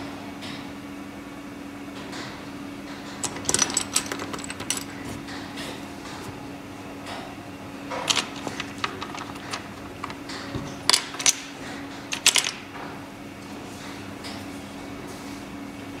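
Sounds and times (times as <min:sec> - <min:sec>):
steady low hum: 0:00.0 - 0:16.0
small hard parts clicking: 0:03.1 - 0:05.4, 0:07.9 - 0:12.6.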